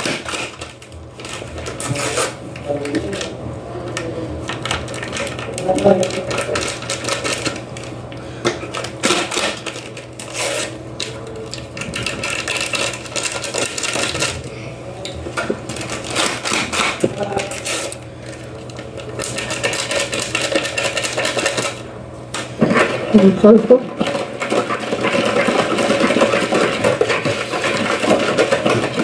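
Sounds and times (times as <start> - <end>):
paper sachets tearing and crinkling: 0.0 - 3.3, 4.5 - 8.0, 8.7 - 14.5, 15.7 - 21.8
steady low hum: 0.0 - 29.0.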